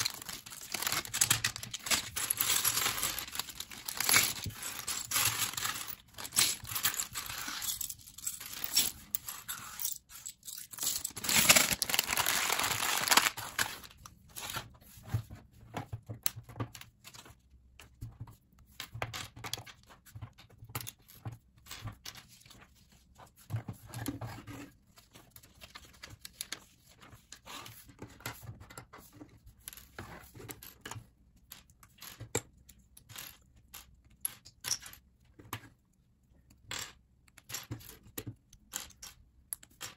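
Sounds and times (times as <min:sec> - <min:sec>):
plastic bag crinkling: 0:00.0 - 0:08.8, 0:10.8 - 0:14.0.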